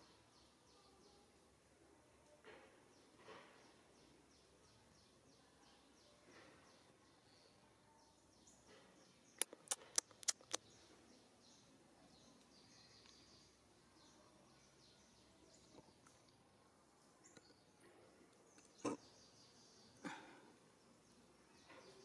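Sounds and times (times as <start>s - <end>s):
sharp clicks: 9.4s - 10.6s.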